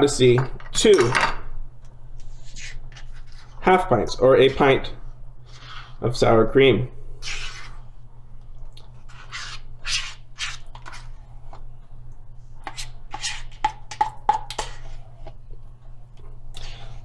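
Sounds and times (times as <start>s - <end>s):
spoon scraping sour cream: 12.6s - 13.8s, 14.5s - 15.4s.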